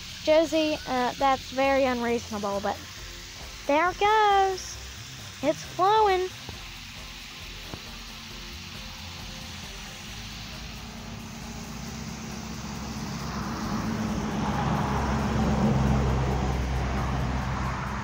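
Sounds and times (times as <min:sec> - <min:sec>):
road noise: 0:00.0 - 0:18.0
vehicle engine hum: 0:00.0 - 0:18.0.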